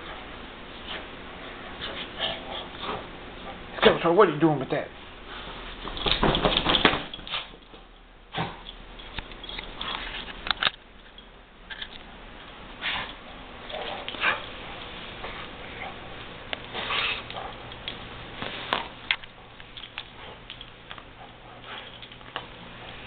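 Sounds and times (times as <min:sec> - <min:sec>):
dog sniffing and snuffling: 0:16.7 - 0:17.6.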